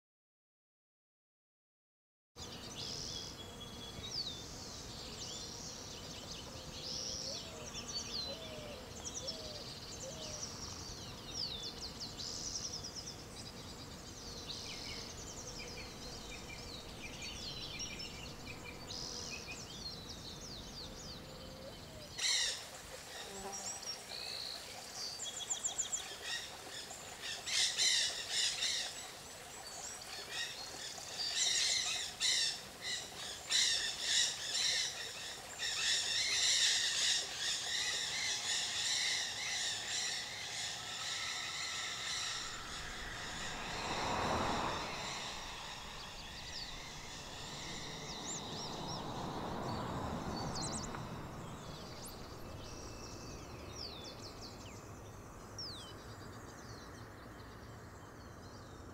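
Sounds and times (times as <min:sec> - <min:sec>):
songbirds chirping and trilling: 0:02.4 - 0:58.9
traffic passing: 0:37.7 - 0:55.6.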